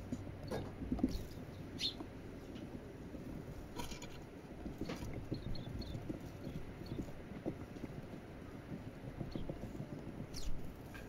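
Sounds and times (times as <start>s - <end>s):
faint high bird chirps: 1.6s - 2.0s
beaks tapping on seed and wood: 3.7s - 8.2s, 9.1s - 11.0s.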